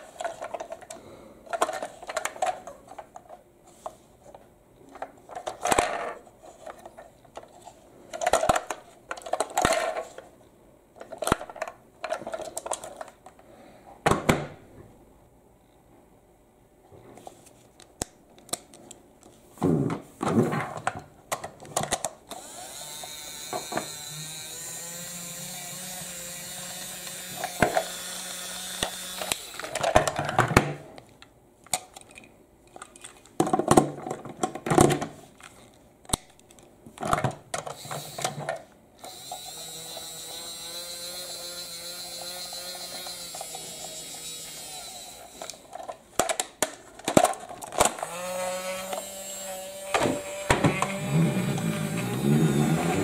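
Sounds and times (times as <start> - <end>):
toy electric motor whirring: 22.3 - 30.0, 37.7 - 45.9, 47.8 - 53.0.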